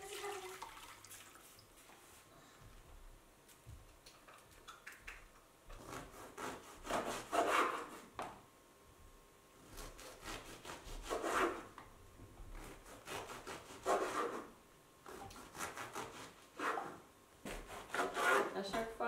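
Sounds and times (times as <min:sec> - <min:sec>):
bread knife sawing through crust: 0:05.8 - 0:08.0, 0:09.7 - 0:11.7, 0:12.6 - 0:14.5, 0:15.1 - 0:18.6.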